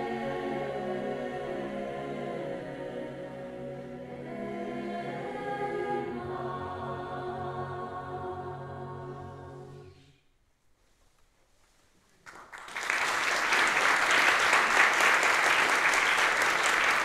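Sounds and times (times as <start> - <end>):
mixed choir singing a hymn: 0.0 - 10.0
audience applauding: 12.2 - 17.0.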